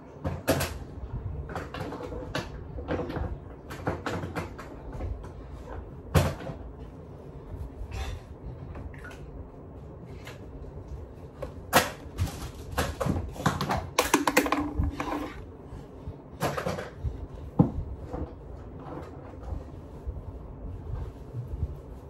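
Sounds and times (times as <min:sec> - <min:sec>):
objects being handled: 0:01.5 - 0:15.6.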